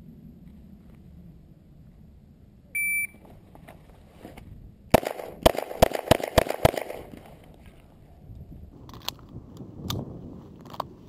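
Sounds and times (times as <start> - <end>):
shot timer beep: 2.8 - 3.2
pistol shots: 4.9 - 7.2.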